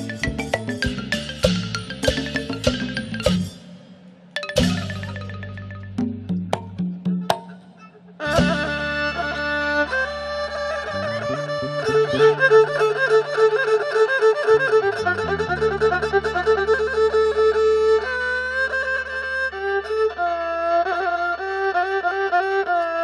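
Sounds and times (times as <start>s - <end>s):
folk ensemble melody: 4.4s - 23.0s.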